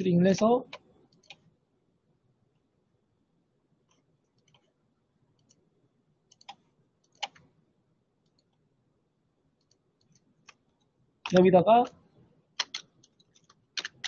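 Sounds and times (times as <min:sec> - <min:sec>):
computer mouse clicking: 0:00.6 - 0:01.5, 0:03.8 - 0:04.8, 0:05.4 - 0:05.6, 0:06.3 - 0:07.5, 0:08.2 - 0:08.6, 0:09.6 - 0:11.5, 0:12.6 - 0:14.0.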